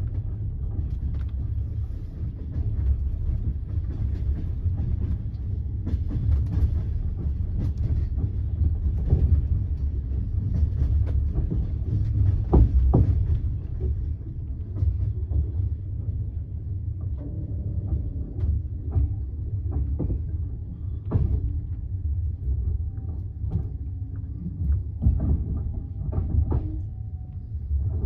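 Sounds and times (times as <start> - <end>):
train wheels rumbling on rails: 0.0 - 28.0
wheels clicking over rail joints: 0.0 - 28.0.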